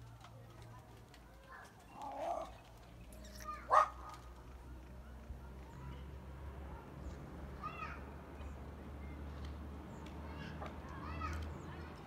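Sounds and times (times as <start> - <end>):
animal barking: 3.7 - 4.0.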